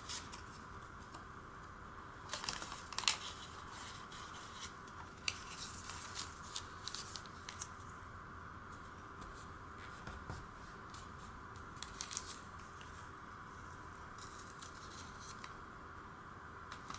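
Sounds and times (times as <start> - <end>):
paper being folded and creased: 0.0 - 1.2, 2.3 - 7.7, 11.8 - 13.0, 14.2 - 15.6.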